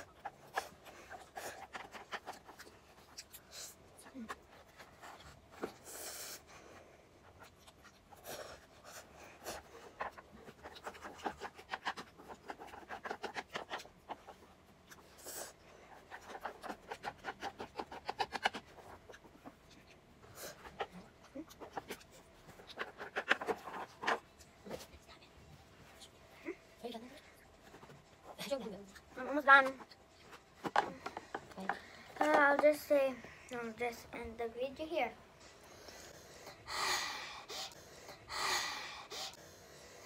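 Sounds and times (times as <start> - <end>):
child slurping and chewing: 0.0 - 24.9
chopsticks scraping plastic container: 16.0 - 19.2, 20.5 - 24.2.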